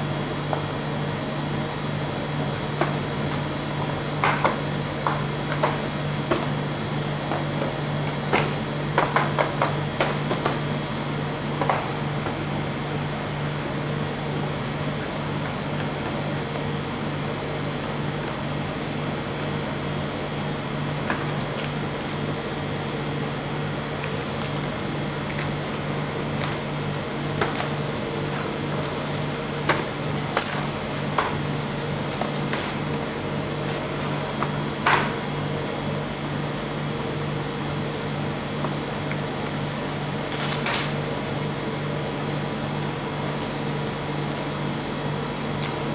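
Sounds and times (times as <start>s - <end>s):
steady low machine hum: 0.0s - 45.9s
plastic film crinkling: 13.1s - 34.3s, 37.3s - 41.4s, 42.2s - 44.6s.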